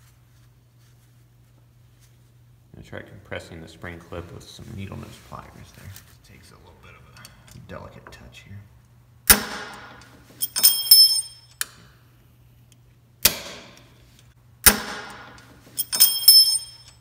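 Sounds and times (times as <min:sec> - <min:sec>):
sharp metallic snaps: 0:09.3 - 0:11.8, 0:13.2 - 0:13.9
ringing spring pings: 0:10.4 - 0:11.6, 0:15.8 - 0:17.0.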